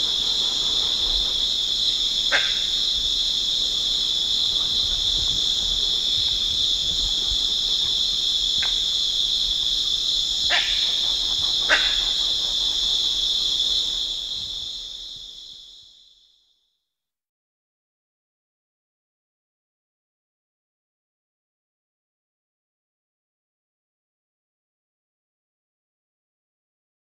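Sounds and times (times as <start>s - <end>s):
shrill insect chorus: 0.0s - 16.8s
monkey barks: 2.3s - 2.7s, 10.5s - 12.2s.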